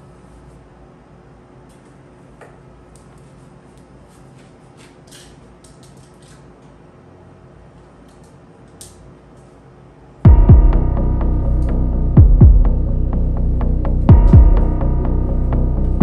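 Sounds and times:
steady low hum: 0:06.7 - 0:16.0.

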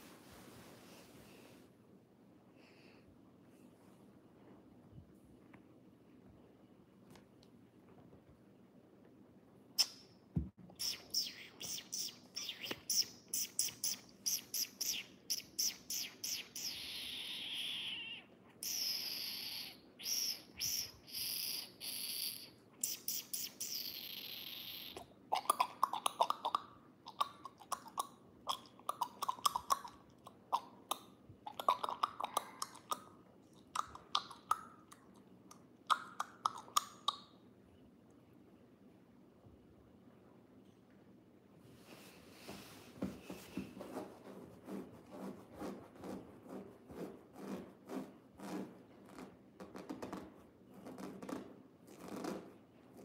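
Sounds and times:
squeaky kissing sounds: 0:10.8 - 0:25.6.

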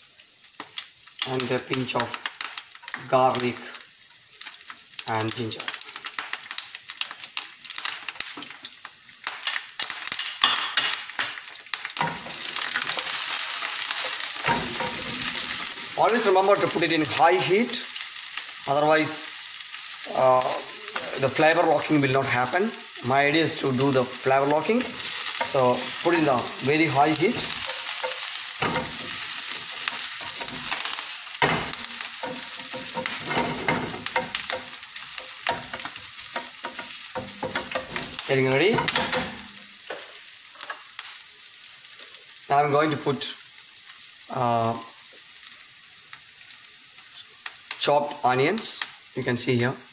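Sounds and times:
aromatics sizzling in hot oil: 0:00.0 - 0:49.9
spatula scraping a pan: 0:12.0 - 0:15.9, 0:24.7 - 0:39.6.

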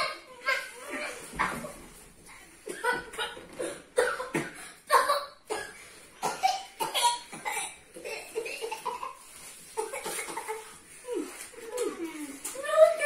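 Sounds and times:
child coughing: 0:02.6 - 0:09.2, 0:09.8 - 0:10.8.

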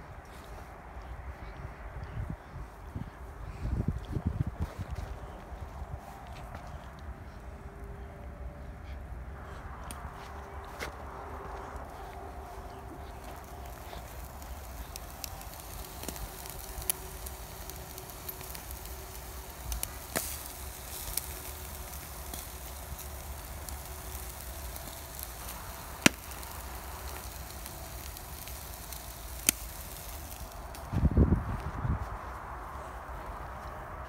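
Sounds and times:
steady low rumble: 0:00.0 - 0:34.0
charcoal fire crackling: 0:09.2 - 0:34.0.

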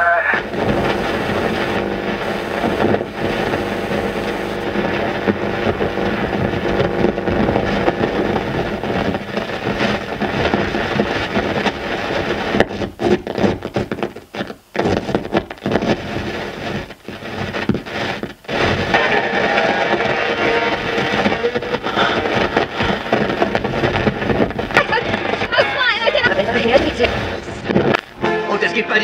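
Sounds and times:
dense rumbling noise: 0:00.0 - 0:14.2, 0:14.8 - 0:29.0
faint steady droning tones: 0:00.0 - 0:29.0.

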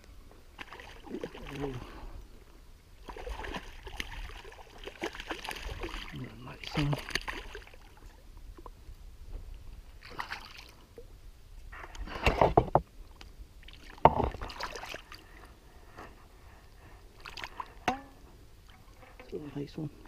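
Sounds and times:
fish splashing in shallow water: 0:00.5 - 0:02.0, 0:03.0 - 0:08.7, 0:10.0 - 0:11.0, 0:13.6 - 0:15.5, 0:17.1 - 0:17.8.

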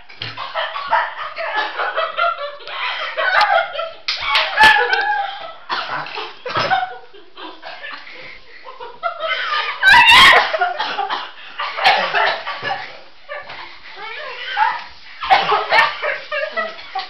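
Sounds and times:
laughter: 0:00.2 - 0:17.0
girls coughing and sputtering: 0:04.7 - 0:13.1, 0:14.0 - 0:17.0
excited voices: 0:09.2 - 0:10.7.

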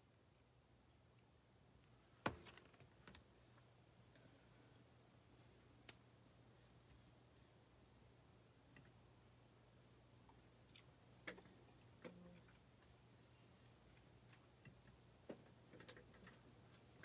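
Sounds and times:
small clicks and knocks: 0:14.0 - 0:16.9.

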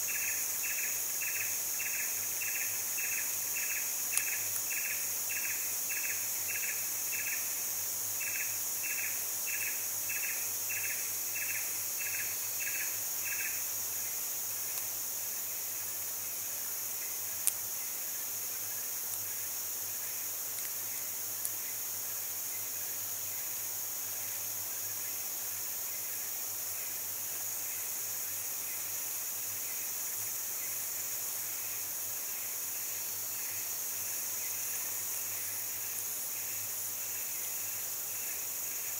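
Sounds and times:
insect pulsed chirping: 0:00.0 - 0:38.9
insects droning: 0:00.0 - 0:38.9.

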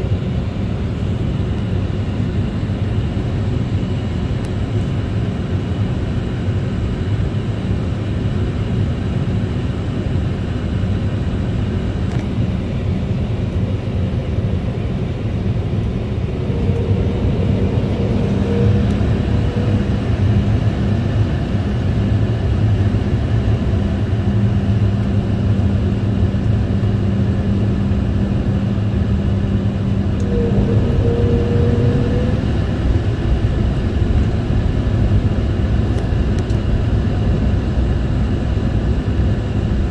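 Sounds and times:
airliner cabin engine rumble: 0:00.0 - 0:39.9
steady hum: 0:11.1 - 0:39.9.

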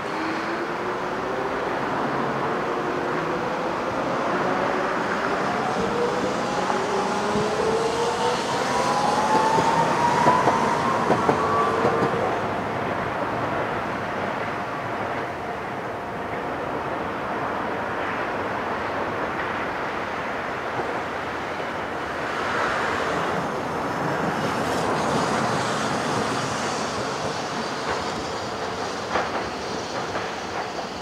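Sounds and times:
road traffic: 0:00.0 - 0:15.9
streetcar motor whine: 0:00.0 - 0:17.6.

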